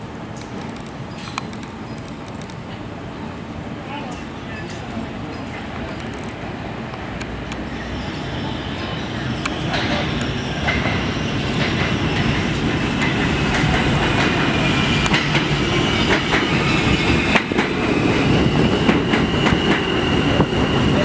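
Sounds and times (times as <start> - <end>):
subway train rumbling: 0.0 - 21.0
wheels clicking over rail joints: 11.6 - 17.8.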